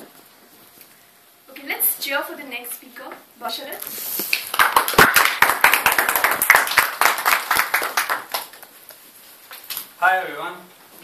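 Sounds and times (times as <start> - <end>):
audience clapping: 4.3 - 8.8.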